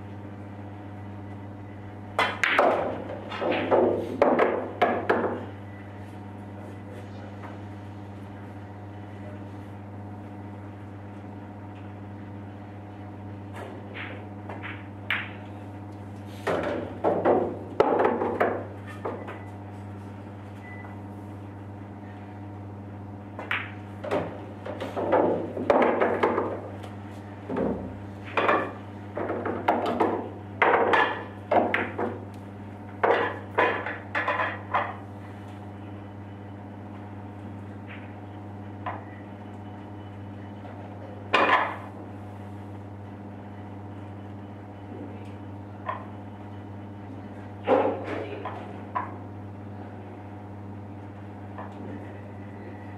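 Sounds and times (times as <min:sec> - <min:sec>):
steady hum: 0:00.0 - 0:52.9
pool balls clacking: 0:02.1 - 0:05.5, 0:13.6 - 0:15.6, 0:16.4 - 0:19.5, 0:23.4 - 0:26.9, 0:27.5 - 0:35.1, 0:41.2 - 0:42.0.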